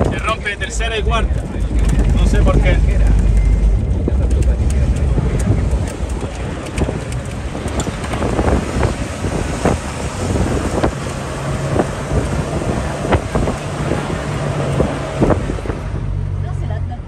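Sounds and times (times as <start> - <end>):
wind noise on microphone: 0.0 - 16.3
vehicle engine running: 0.0 - 17.0
rattles and knocks: 1.1 - 9.0.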